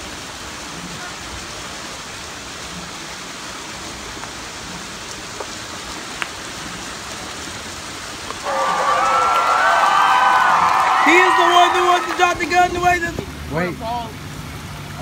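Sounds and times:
waterfall rushing: 0:00.0 - 0:15.0
man whooping and cheering: 0:08.4 - 0:12.6.

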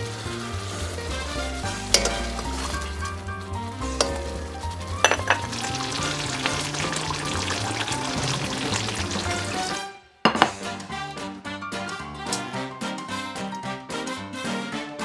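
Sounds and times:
sauce bubbling in a wok: 0:00.0 - 0:09.9
metal ladle clinking on wok: 0:01.9 - 0:03.1, 0:04.0 - 0:04.4, 0:05.0 - 0:06.0.

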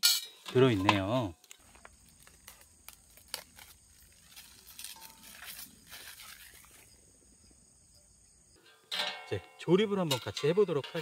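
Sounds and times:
plastic film crinkling: 0:01.6 - 0:06.9.

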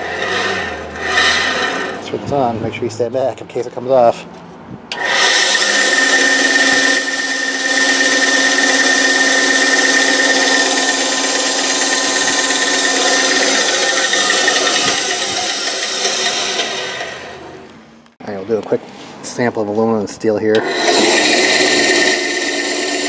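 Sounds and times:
bandsaw motor hum and blade whine: 0:00.0 - 0:02.2, 0:04.9 - 0:17.7, 0:20.6 - 0:23.0.

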